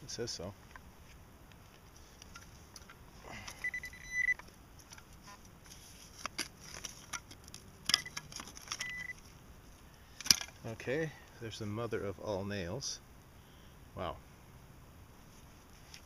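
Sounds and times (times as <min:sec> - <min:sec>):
metal detector beep: 0:03.5 - 0:04.4, 0:07.9 - 0:09.2.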